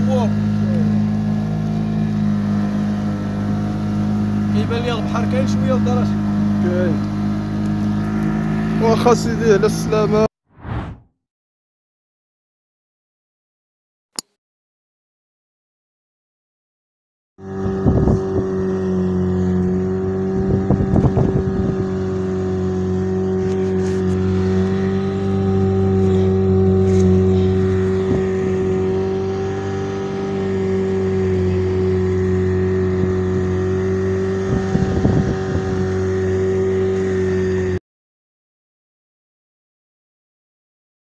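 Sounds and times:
outboard motor running: 0.0s - 10.3s, 17.4s - 37.8s.

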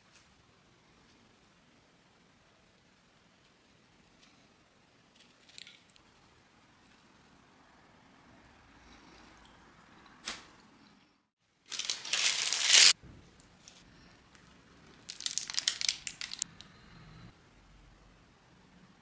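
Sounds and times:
crumpling and tearing: 11.7s - 13.0s, 15.0s - 16.5s
plastic bag crinkling: 11.7s - 13.0s, 15.0s - 16.5s.

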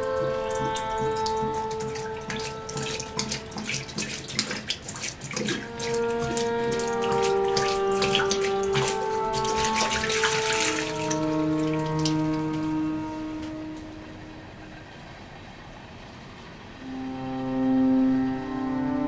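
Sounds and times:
sustained music notes: 0.0s - 4.7s, 5.4s - 15.4s, 16.8s - 19.0s
liquid glugging into a sink: 0.0s - 13.0s.

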